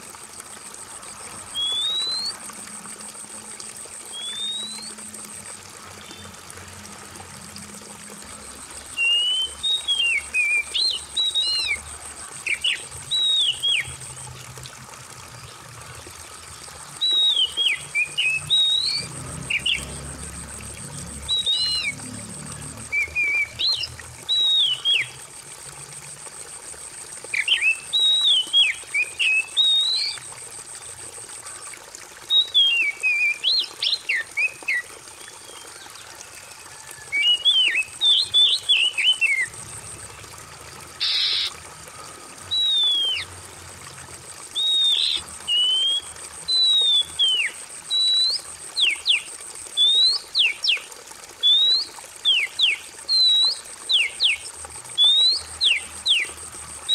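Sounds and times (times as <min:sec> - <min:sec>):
trickling water: 0:00.0 - 0:56.9
bird singing whistled phrases: 0:01.6 - 0:02.4, 0:04.1 - 0:05.0, 0:08.9 - 0:11.8, 0:12.5 - 0:13.9, 0:17.0 - 0:19.7, 0:21.3 - 0:22.0, 0:23.0 - 0:25.1, 0:27.4 - 0:30.2, 0:32.3 - 0:34.8, 0:41.0 - 0:41.5, 0:42.5 - 0:43.3, 0:44.6 - 0:49.2, 0:49.8 - 0:50.8, 0:51.4 - 0:54.4, 0:55.0 - 0:56.3.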